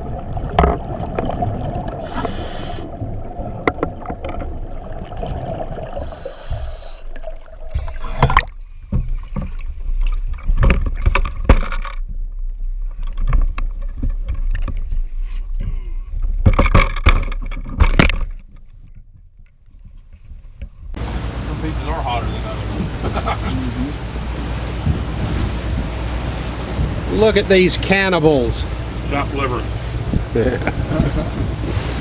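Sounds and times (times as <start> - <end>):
muffled underwater rumbling: 0.0 - 32.0
water splashing against boat hull: 0.0 - 32.0
knocks on boat: 24.7 - 26.0, 26.8 - 27.1.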